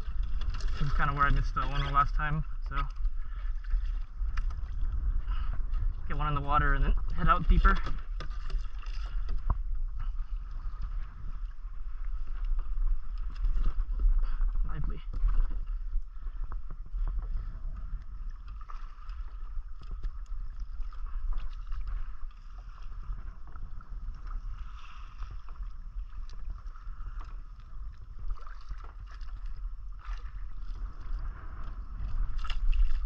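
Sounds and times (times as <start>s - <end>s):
sea water washing around kayak: 0.0s - 33.0s
wind rumbling on microphone: 0.0s - 33.0s.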